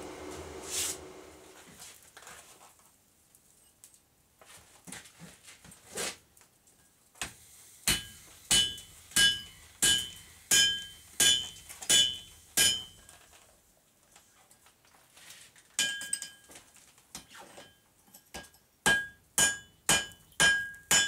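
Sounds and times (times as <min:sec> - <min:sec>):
hammer striking metal on anvil: 0:07.9 - 0:13.0, 0:18.4 - 0:21.0.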